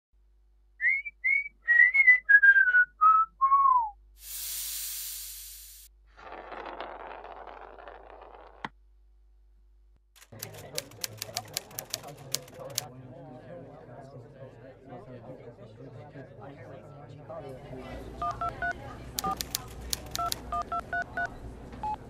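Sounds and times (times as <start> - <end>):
whistled tune: 0.8 - 4.0
high hiss: 4.2 - 5.9.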